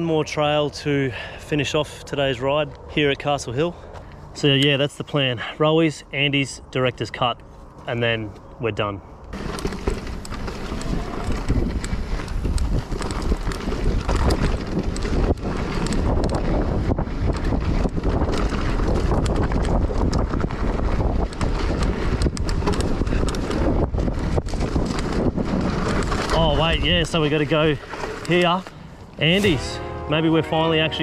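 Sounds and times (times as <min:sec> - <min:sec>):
wind buffeting microphone: 0:09.3 - 0:29.3
bike clicks and knocks on rough ground: 0:09.3 - 0:29.4.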